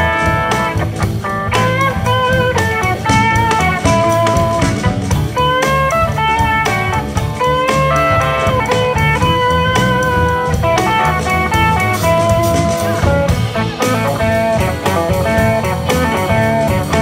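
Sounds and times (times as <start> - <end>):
blues-rock band playing: 0.0 - 17.0
electric guitar lead line: 0.0 - 17.0.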